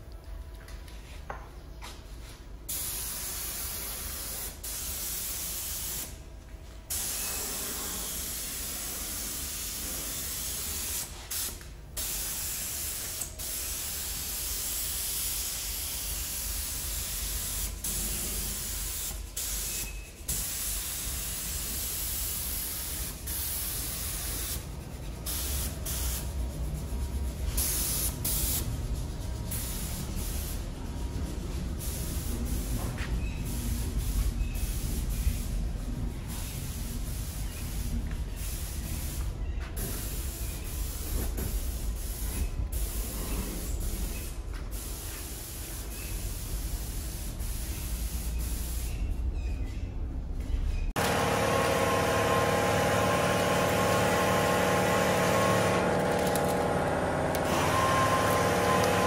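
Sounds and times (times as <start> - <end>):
paint spray gun hissing: 2.7 - 6.1, 6.9 - 24.6, 25.3 - 26.3, 27.6 - 28.7, 29.5 - 30.6, 31.8 - 35.4, 36.3 - 39.2, 44.1 - 49.0, 51.0 - 59.0.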